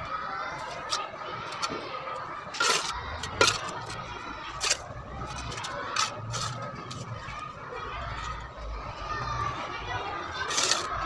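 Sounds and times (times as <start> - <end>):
trowel scraping and tapping brick: 2.5 - 7.4, 10.4 - 11.0.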